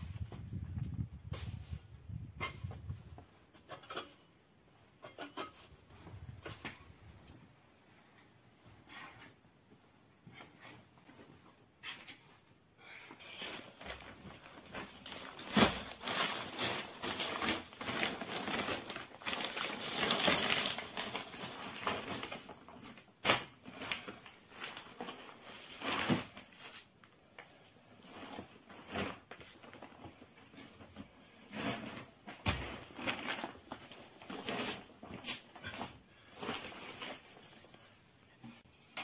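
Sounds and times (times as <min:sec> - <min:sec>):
plastic sheet rustling: 0:13.4 - 0:38.1.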